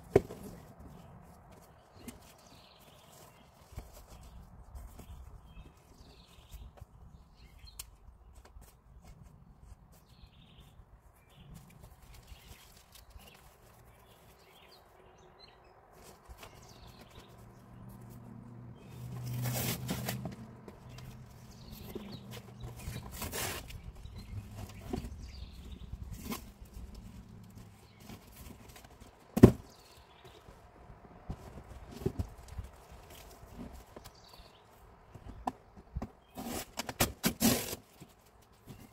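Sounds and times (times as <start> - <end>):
cardboard scraping and rustling: 18.9 - 30.5, 35.3 - 38.9.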